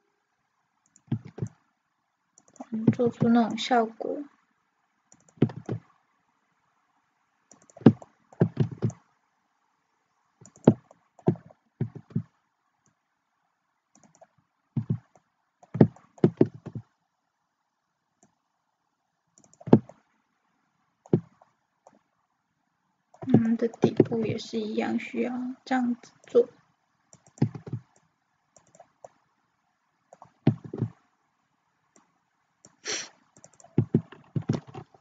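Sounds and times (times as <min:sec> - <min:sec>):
keyboard and mouse clicks: 0:00.8 - 0:01.6, 0:02.4 - 0:03.6, 0:05.1 - 0:05.9, 0:07.5 - 0:09.0, 0:10.4 - 0:13.0, 0:13.9 - 0:16.9, 0:19.4 - 0:20.0, 0:21.0 - 0:22.0, 0:23.2 - 0:24.3, 0:27.1 - 0:29.2, 0:30.1 - 0:31.0, 0:31.9 - 0:35.0.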